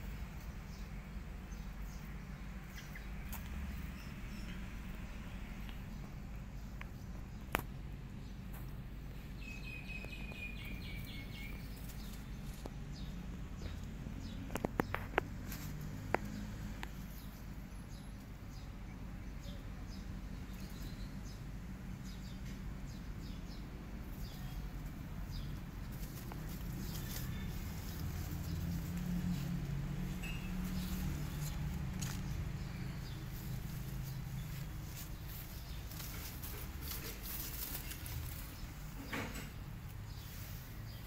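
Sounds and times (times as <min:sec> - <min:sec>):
bird chirping: 0:00.6 - 0:07.6, 0:08.2 - 0:41.0
kittens rustling dry leaves: 0:08.4 - 0:17.6, 0:22.7 - 0:41.0.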